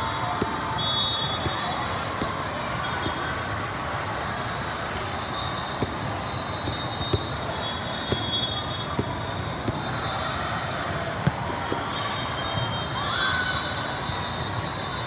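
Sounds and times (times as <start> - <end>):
balls slapping and bouncing: 3.0 - 3.2, 5.7 - 10.0, 10.8 - 11.9.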